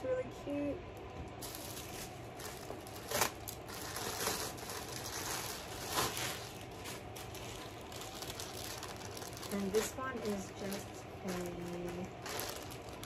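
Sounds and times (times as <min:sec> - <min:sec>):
plastic packaging crinkling: 0:01.0 - 0:13.0.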